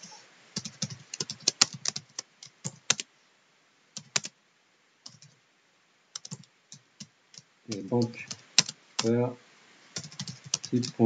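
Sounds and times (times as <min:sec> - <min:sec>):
typing on computer keyboard: 0:00.6 - 0:03.1, 0:04.0 - 0:04.3, 0:05.0 - 0:05.4, 0:06.2 - 0:09.1, 0:10.0 - 0:11.0.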